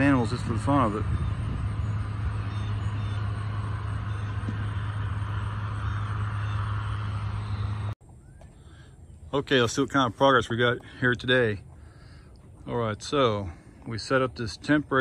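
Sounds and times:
vehicle engine running: 0:00.0 - 0:08.0.

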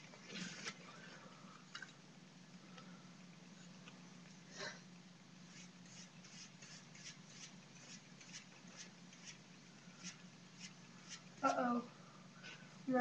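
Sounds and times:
low steady hum: 0:00.0 - 0:13.0
paintbrush strokes: 0:05.5 - 0:11.6.

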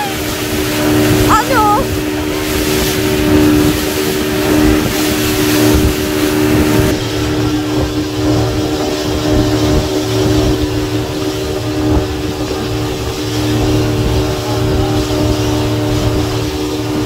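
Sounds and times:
speedboat engine running: 0:00.0 - 0:17.0
water rushing and splashing: 0:00.0 - 0:17.0
wind buffeting microphone: 0:00.1 - 0:17.0.

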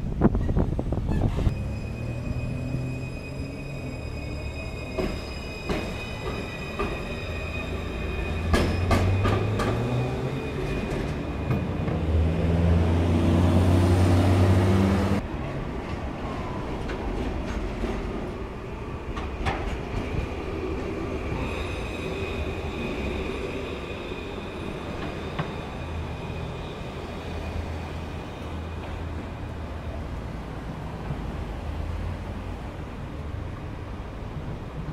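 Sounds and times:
street traffic: 0:00.0 - 0:34.9
tram motor whine: 0:01.5 - 0:15.2
tram wheels clicking over track joints: 0:08.4 - 0:10.0.

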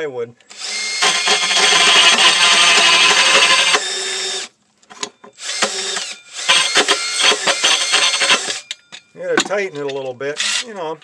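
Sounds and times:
cordless drill sawing plywood: 0:00.5 - 0:04.5, 0:05.4 - 0:08.7.

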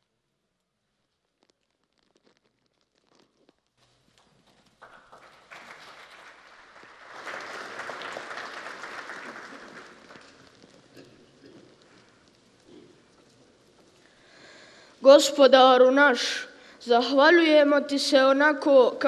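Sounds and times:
audience applause: 0:04.6 - 0:12.0.

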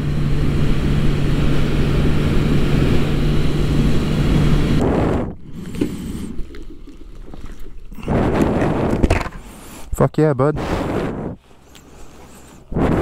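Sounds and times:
motorcycle engine drone: 0:00.0 - 0:06.4
wind rush on microphone: 0:00.0 - 0:06.4, 0:07.9 - 0:13.0.

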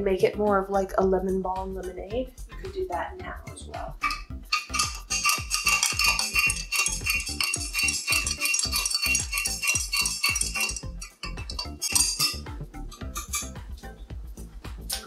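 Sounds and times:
background music with beat: 0:00.0 - 0:15.0
spoon clinking against glass: 0:04.0 - 0:13.6.

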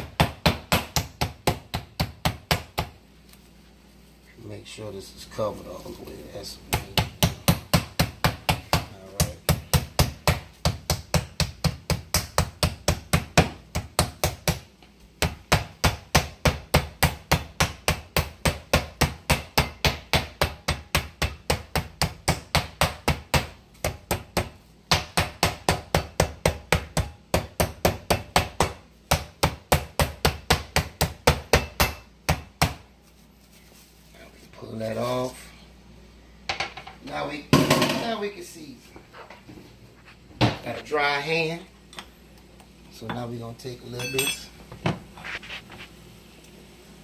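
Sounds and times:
meat mallet pounding: 0:00.0 - 0:03.0, 0:06.7 - 0:32.8.

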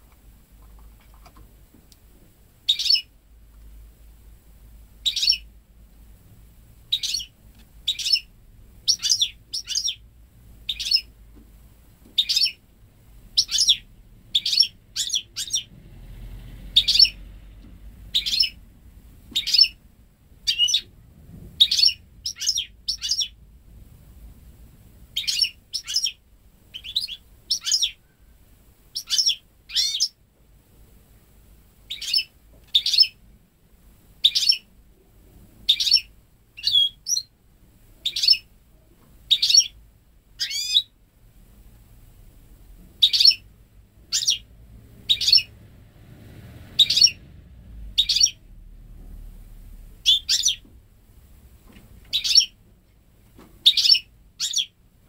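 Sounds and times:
bird chirping high: 0:02.7 - 0:03.1, 0:05.0 - 0:05.5, 0:06.9 - 0:11.1, 0:12.2 - 0:12.6, 0:13.3 - 0:15.7, 0:16.8 - 0:17.2, 0:18.1 - 0:18.6, 0:19.4 - 0:19.8, 0:20.4 - 0:20.9, 0:21.6 - 0:23.4, 0:25.1 - 0:28.1, 0:28.9 - 0:30.2, 0:31.8 - 0:33.2, 0:34.2 - 0:34.7, 0:35.6 - 0:37.4, 0:38.0 - 0:38.5, 0:39.3 - 0:39.8, 0:40.4 - 0:41.0, 0:43.0 - 0:45.6, 0:46.8 - 0:47.2, 0:47.9 - 0:48.5, 0:50.0 - 0:50.7, 0:52.1 - 0:52.6, 0:53.6 - 0:54.8.

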